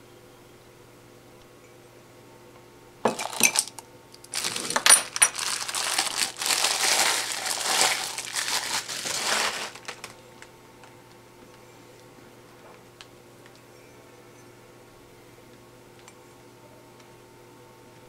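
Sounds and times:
packaging crinkling: 3.1 - 10.5.

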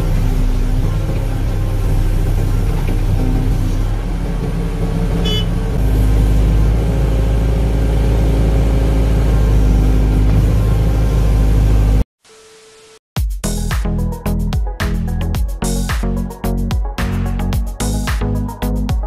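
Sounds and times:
excavator diesel engine running: 0.0 - 12.0.

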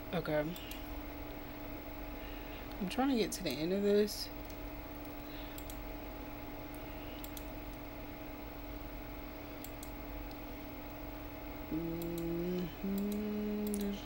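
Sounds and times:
room hum: 0.0 - 14.0
computer mouse clicking: 4.4 - 5.8, 6.7 - 7.5, 9.6 - 10.4, 12.0 - 12.3, 12.9 - 13.9.

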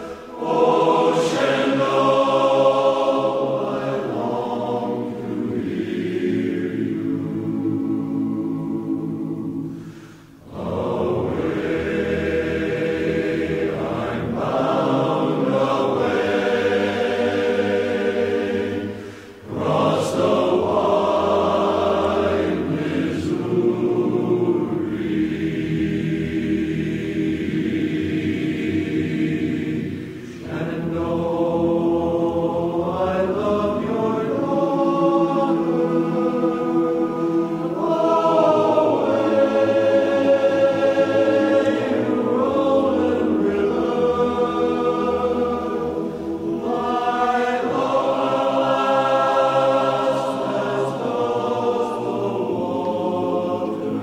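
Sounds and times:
choir singing: 0.0 - 54.0.

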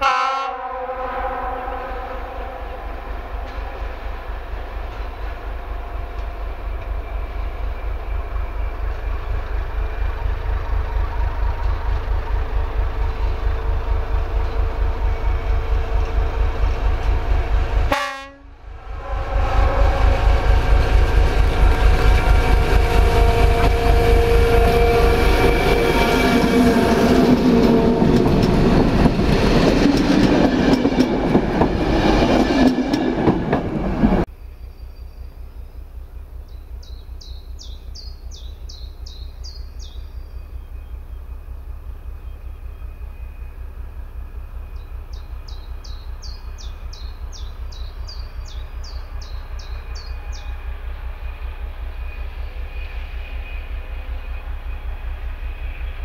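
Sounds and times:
diesel locomotive engine throbbing: 0.0 - 56.0
wheel and rail noise: 0.6 - 56.0.

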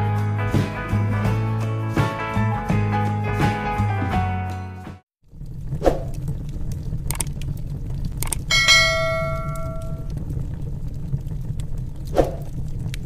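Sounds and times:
wood fire crackling: 5.2 - 13.0
fire pops: 5.3 - 13.0
bell ding: 8.5 - 10.1.

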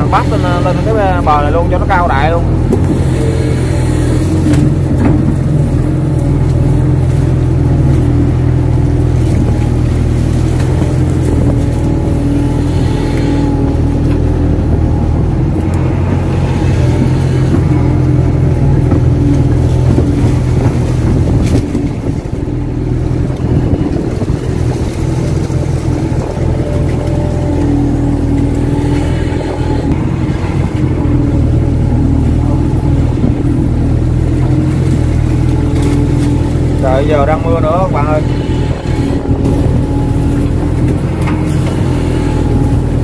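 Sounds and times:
excavator diesel engine running: 0.0 - 43.0.

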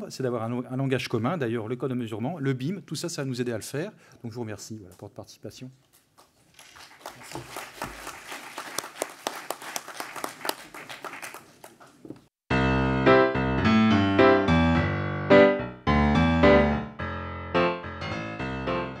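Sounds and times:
audience applause: 6.6 - 12.1
loud piano music: 12.5 - 19.0.

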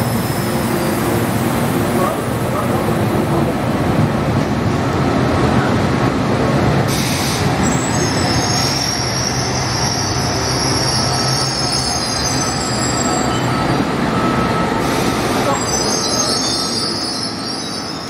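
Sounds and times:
train running with low hum: 0.0 - 18.0
brake and wheel squeal: 6.9 - 18.0.

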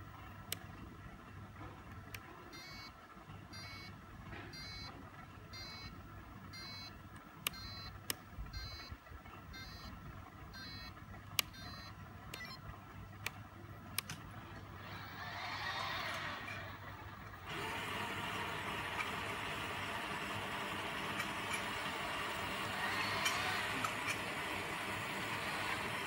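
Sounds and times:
low steady hum: 0.0 - 26.0
sharp clicks: 6.6 - 8.9, 10.6 - 12.6, 13.2 - 15.0.

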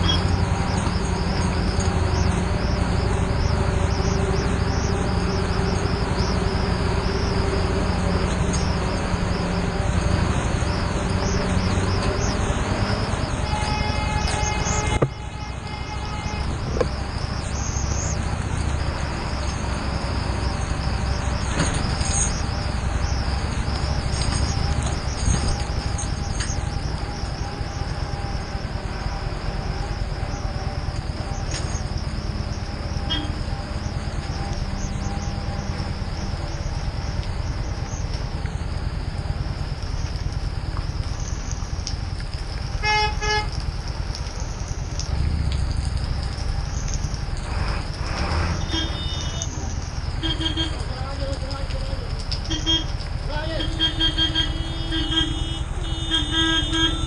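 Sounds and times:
wind and road noise: 0.0 - 57.0
vehicle horn: 13.4 - 16.7, 33.1 - 33.4, 42.8 - 43.5, 48.6 - 49.5, 50.2 - 50.8, 52.5 - 52.9, 53.5 - 57.0.

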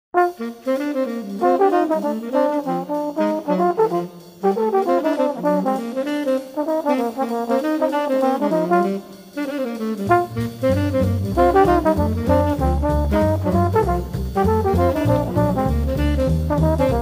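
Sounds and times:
jazz trombone and horn playing: 0.2 - 17.0.

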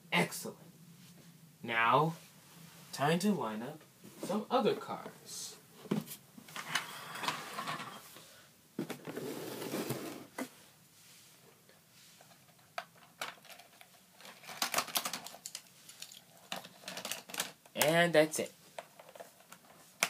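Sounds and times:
rustling handling noise: 4.0 - 17.9, 18.5 - 20.0
plastic toy clicks and rattles: 13.2 - 17.9.

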